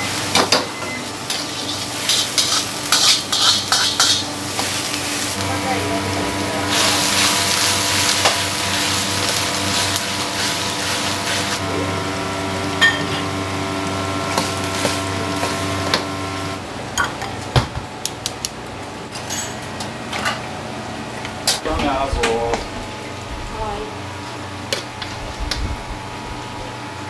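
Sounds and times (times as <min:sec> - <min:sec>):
food sizzling in a wok: 0:00.0 - 0:16.5
kitchen hum: 0:00.0 - 0:27.0
utensils clinking on dishes: 0:00.3 - 0:05.0, 0:12.8 - 0:13.3, 0:19.1 - 0:20.4.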